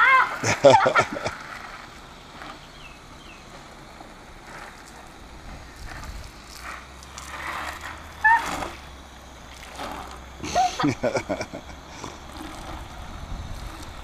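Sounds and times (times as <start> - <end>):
hose nozzle spraying water: 0.0 - 14.0
high rising squeal: 5.2 - 10.9.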